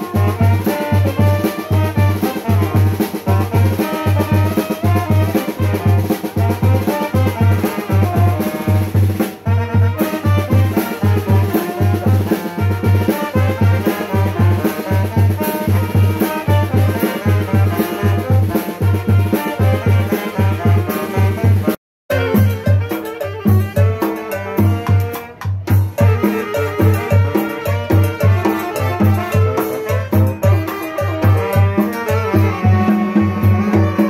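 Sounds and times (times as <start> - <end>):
street band playing: 0.0 - 34.0
bass drum beats: 32.4 - 34.0.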